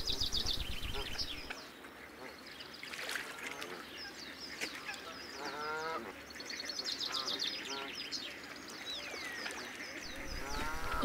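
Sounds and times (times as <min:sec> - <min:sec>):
small birds chirping: 0:00.0 - 0:11.0
waterfowl honking: 0:05.4 - 0:06.2, 0:10.1 - 0:11.0.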